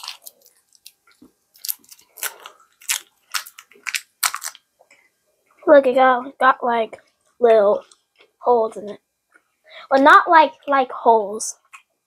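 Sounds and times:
candy wrapper crinkling: 0.0s - 4.7s.

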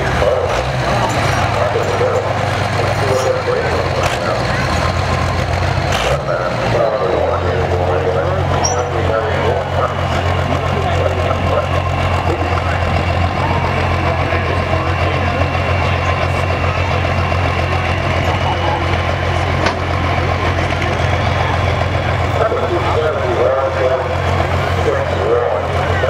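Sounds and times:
truck engine idling: 0.0s - 26.0s.

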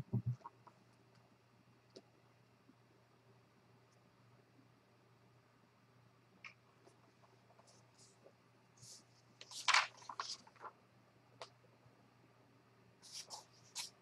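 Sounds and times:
paper pages rustling: 8.8s - 10.7s, 13.0s - 14.0s.

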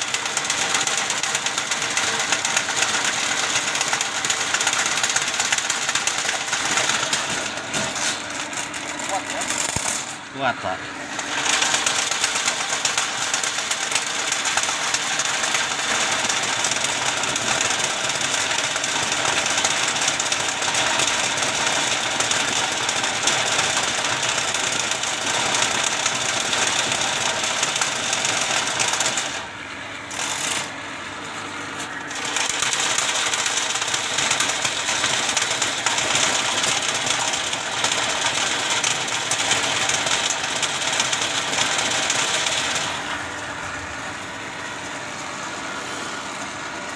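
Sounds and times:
drain cleaning machine cable rattling: 32.0s - 43.1s.

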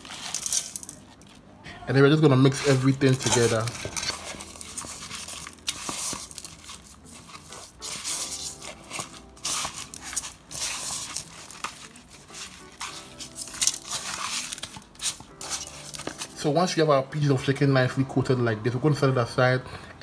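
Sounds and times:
hands rubbing meat in a bowl: 2.5s - 16.4s.

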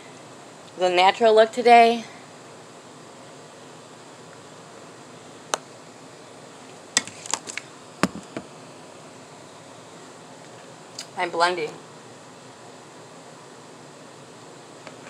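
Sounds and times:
faint room tone hiss: 0.0s - 15.0s
sharp clicks and taps: 8.0s - 8.5s.

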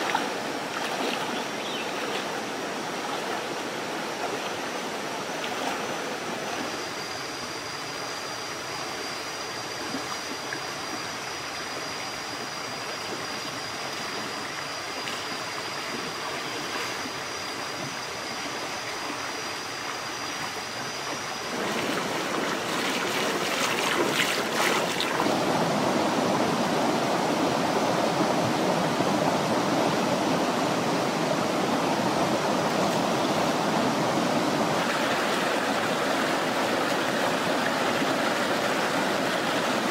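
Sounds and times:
stream water rushing: 0.0s - 39.9s
thin high whine: 0.0s - 39.9s.

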